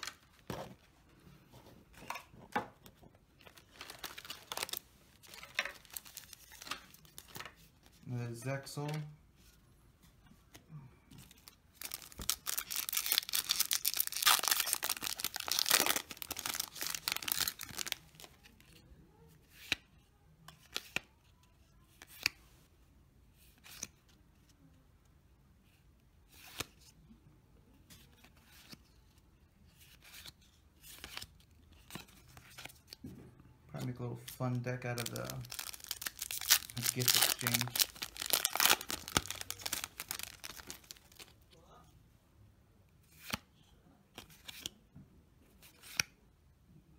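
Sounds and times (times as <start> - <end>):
foil wrapper crackling: 11.8 - 18.1, 34.9 - 41.2.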